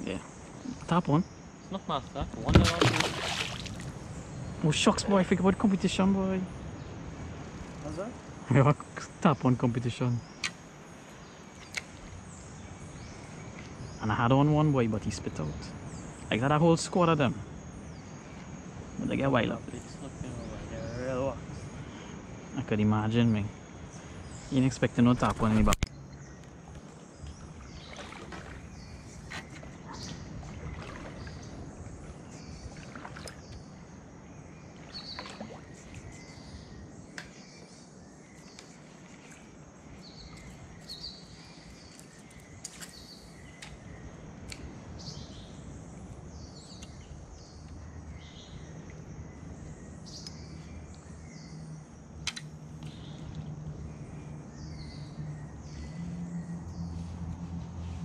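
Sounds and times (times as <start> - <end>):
birds chirping: 0.0 - 58.0
outdoor background noise: 0.0 - 58.0
sharp clicks: 52.2 - 52.5.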